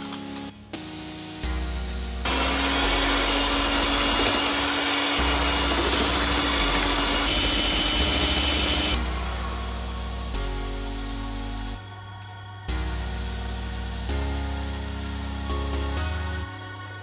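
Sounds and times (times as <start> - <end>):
electric hand mixer whining: 2.3 - 9.0.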